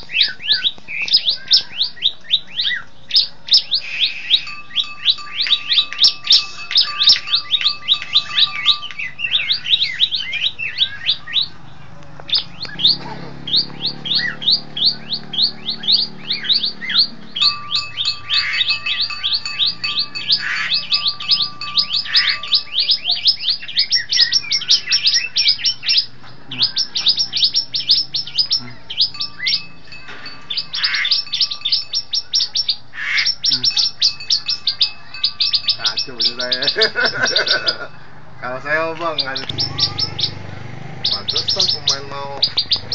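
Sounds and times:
bird calling high sweeping notes: 0.0s - 11.6s, 12.3s - 42.9s.

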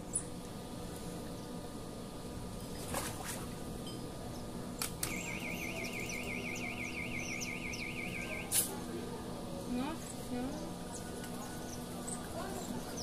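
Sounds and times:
outdoor pondside ambience: 0.0s - 13.0s
high warbling call: 5.1s - 8.7s.

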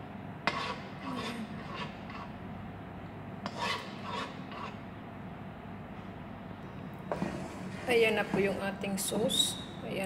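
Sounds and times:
metal spoon scraping wok: 0.5s - 2.3s, 3.5s - 4.8s.

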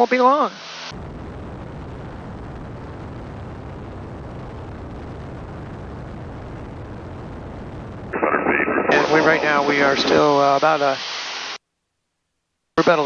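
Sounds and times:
airplane engine drone: 8.2s - 11.0s.

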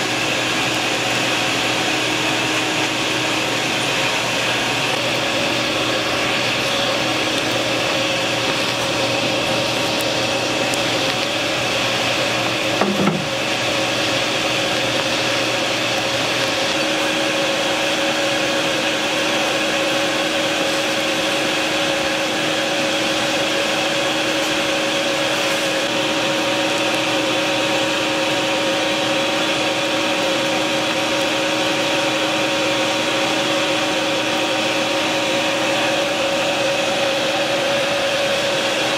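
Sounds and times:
forge air blower whirring: 0.0s - 38.9s
brief knock: 12.8s - 13.4s.

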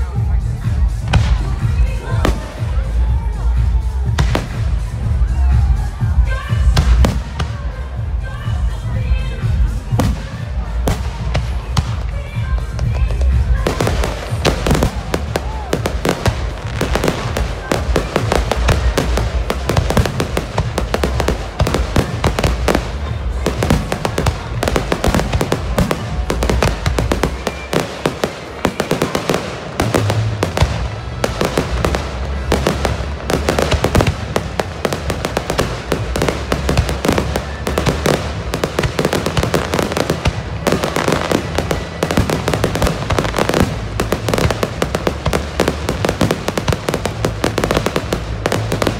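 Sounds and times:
fireworks bursting: 0.0s - 48.9s.

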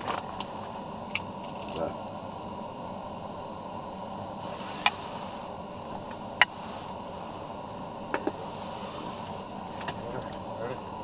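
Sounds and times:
steady hiss: 0.1s - 11.0s
sharp metallic clinks: 4.8s - 5.4s, 6.4s - 7.0s.

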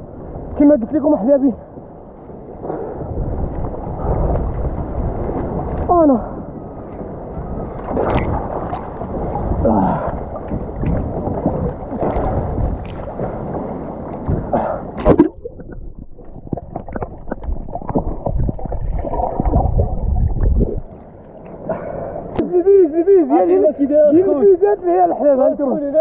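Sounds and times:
water slapping and gurgling: 0.0s - 26.0s
underwater bubbling and clicks: 2.1s - 5.9s, 6.8s - 22.4s
water splashes: 2.3s - 22.8s.

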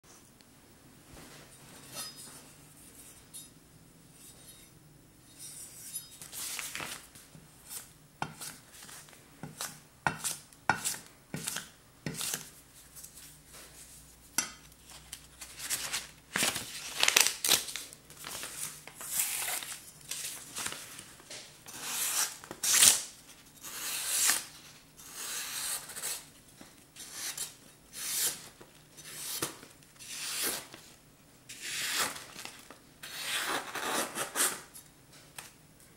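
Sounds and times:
paper sheet rustling: 6.2s - 7.2s, 14.8s - 21.3s
knife slicing paper: 21.7s - 24.5s, 31.5s - 34.7s.

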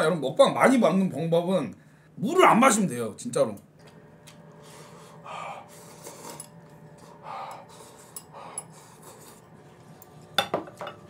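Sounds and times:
soft eating noises: 3.6s - 11.0s.

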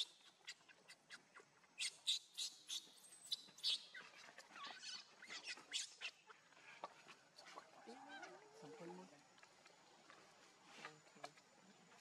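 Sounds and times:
animal chirps and squeaks: 0.0s - 6.3s.

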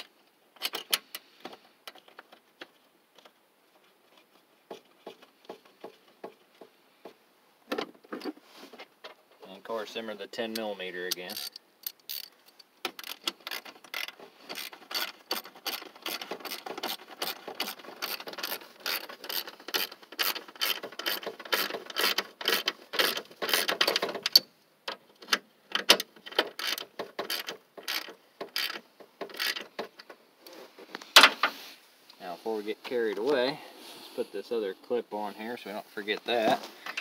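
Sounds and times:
ratchet wrench clicking: 11.2s - 12.3s, 12.9s - 24.4s, 26.6s - 29.6s.

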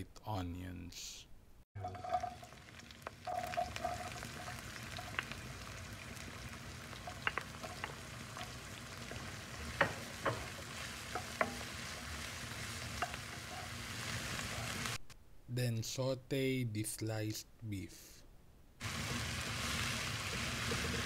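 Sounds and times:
onions sizzling in oil: 1.8s - 15.0s, 18.8s - 21.0s
spatula tapping pan: 7.0s - 11.9s.

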